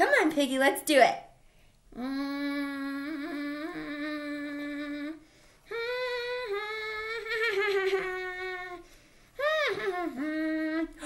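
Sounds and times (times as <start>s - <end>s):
woman humming: 1.9s - 8.8s, 9.4s - 11.0s.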